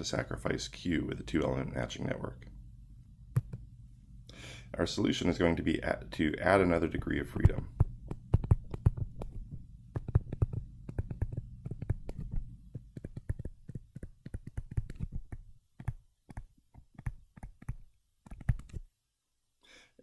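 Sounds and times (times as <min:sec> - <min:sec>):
stylus tapping on tablet screen: 0:03.3 - 0:03.6, 0:07.4 - 0:18.8.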